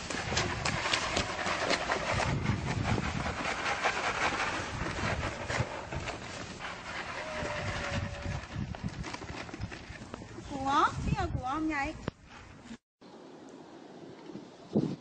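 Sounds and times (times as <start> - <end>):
rabbits scampering on pavement: 0.0 - 10.7.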